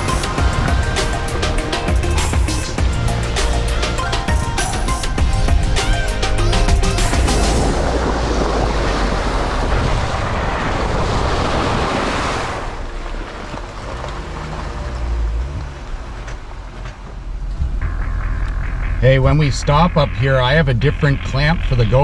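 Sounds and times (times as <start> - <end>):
low vehicle rumble: 0.0 - 22.0
wind on microphone: 4.2 - 12.8
tyre splashing through mud puddle: 7.3 - 16.8.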